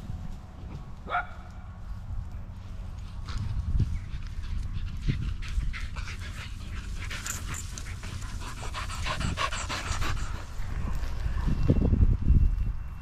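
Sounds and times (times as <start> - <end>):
rustling through long grass: 0.0 - 12.7
steady low rumble: 0.0 - 13.0
dogs panting: 2.4 - 11.6.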